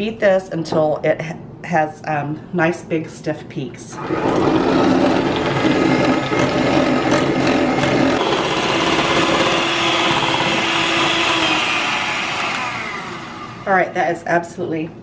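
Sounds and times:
electric hand mixer whipping cream: 4.0 - 13.8.

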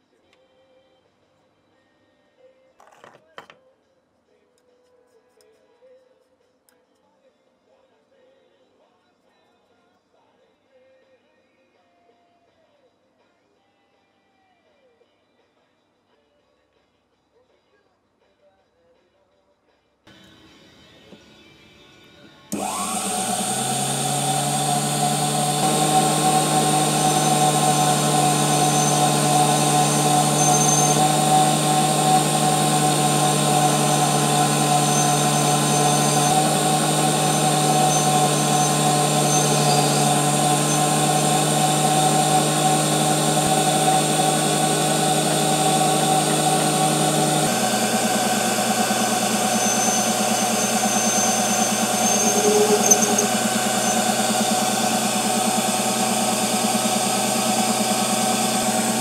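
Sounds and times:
lathe motor humming and whining: 22.2 - 59.0.

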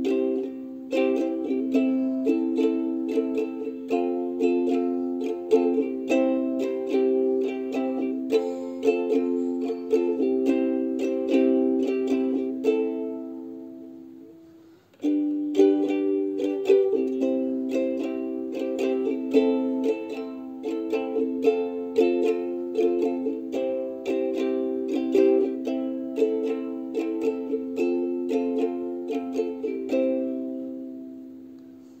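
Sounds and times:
light plucked-string tune: 0.0 - 31.9.

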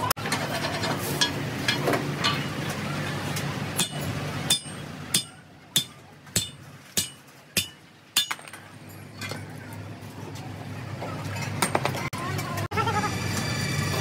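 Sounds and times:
sledgehammer clanging on steel: 3.8 - 9.5.

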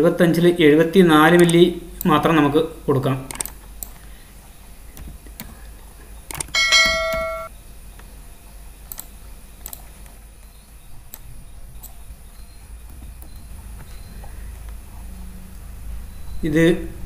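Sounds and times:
low steady hum: 0.7 - 17.0
bright electronic ding: 6.6 - 7.5.

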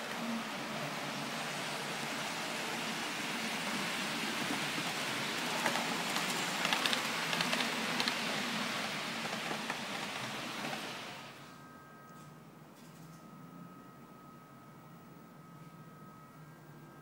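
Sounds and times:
model train rolling hiss: 0.0 - 11.6
wheels clicking over rail joints: 5.3 - 11.3.

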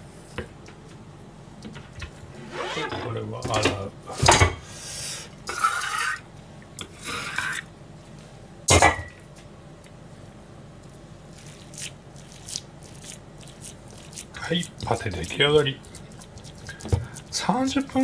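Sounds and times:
utensils scraping in sink: 2.4 - 3.2.

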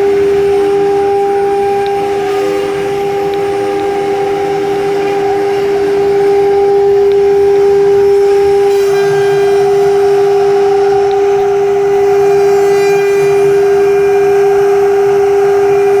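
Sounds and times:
bit cutting wood: 0.0 - 16.0
router spindle whining: 0.0 - 16.0.

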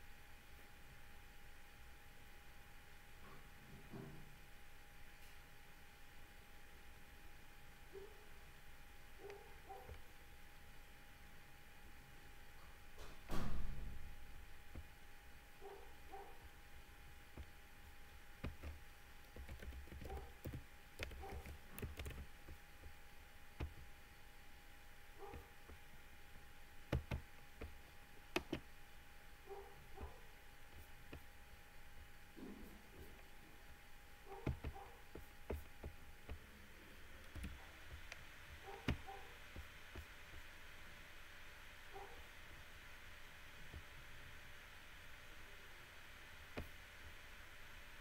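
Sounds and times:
faint clicks and knocks: 17.3 - 23.0, 23.6 - 23.9, 26.9 - 28.7, 34.3 - 36.6, 37.2 - 40.5.

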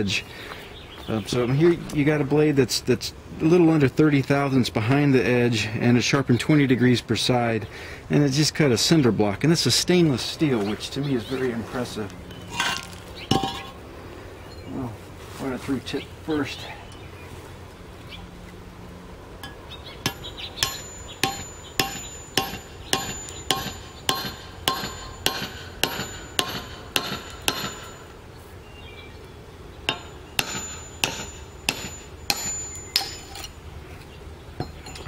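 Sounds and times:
hammer striking knife spine: 19.4 - 28.1, 29.9 - 33.6.

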